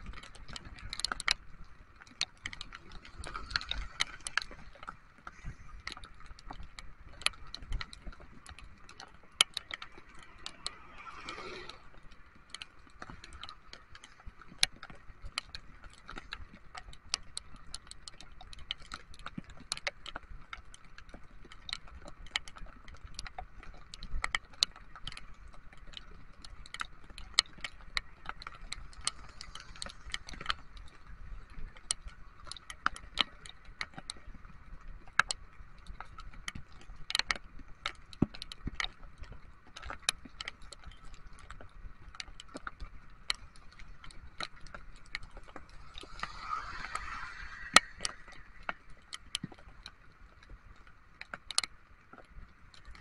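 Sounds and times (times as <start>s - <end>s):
raindrops tapping on camera: 0.0s - 53.0s
tyres on wet road: 9.8s - 12.3s, 45.2s - 49.2s.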